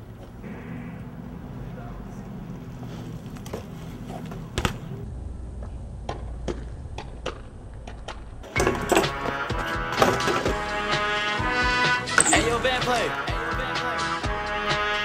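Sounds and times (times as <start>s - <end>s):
bike tyres rolling on concrete: 2.0s - 10.7s
bike hitting ledge: 8.1s - 10.5s
music: 8.4s - 15.0s.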